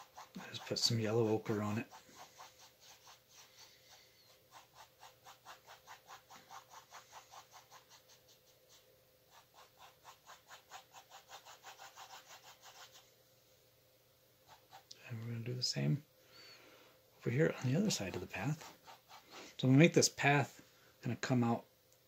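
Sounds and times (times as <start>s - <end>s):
paintbrush scrubbing on canvas: 0.0s - 13.1s, 14.4s - 15.0s, 17.5s - 19.6s.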